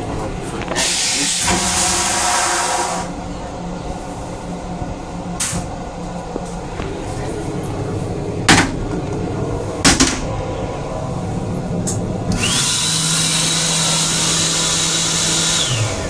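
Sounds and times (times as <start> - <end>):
low steady rumble: 0.0 - 12.6
hand dryer blowing: 0.8 - 3.2, 12.3 - 16.0.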